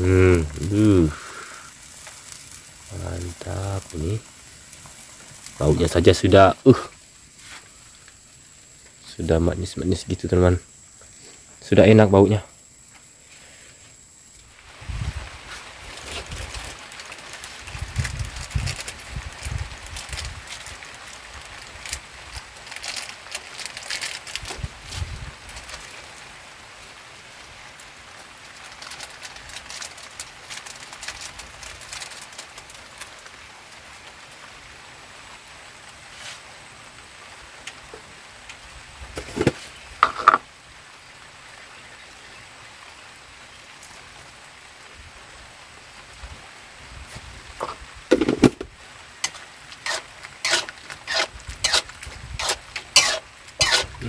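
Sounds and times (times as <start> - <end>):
light drizzle pattering: 0.0 - 54.0.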